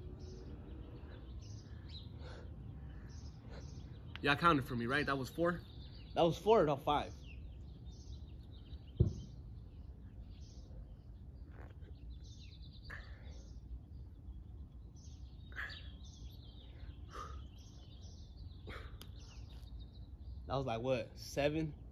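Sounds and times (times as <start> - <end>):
low outdoor rumble: 0.0 - 21.9
small birds chirping: 0.0 - 21.9
thump: 9.0 - 9.3.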